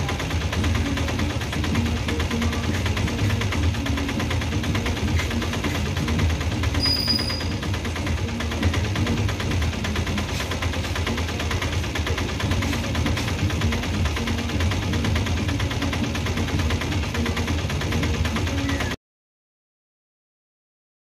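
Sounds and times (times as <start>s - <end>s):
train wheels clattering over rails: 2.4s - 18.4s
high squeak: 6.8s - 7.7s.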